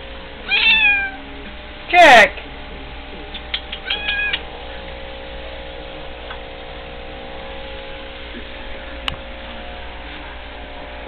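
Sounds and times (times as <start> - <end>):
aquarium equipment humming: 0.0 - 11.0
sharp click: 3.3 - 4.4.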